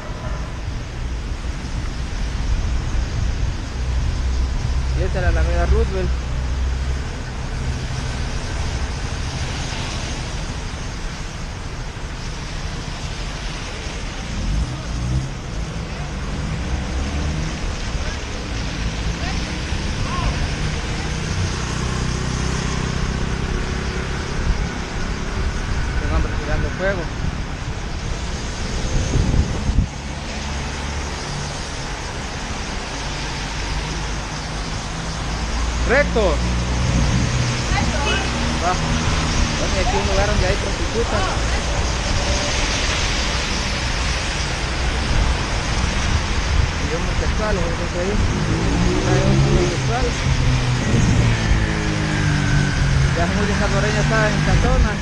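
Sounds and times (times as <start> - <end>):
car engines passing: 0.0 - 55.0
low rumble: 0.0 - 55.0
wet street traffic hiss: 0.0 - 55.0
loud low rumble: 33.8 - 55.0.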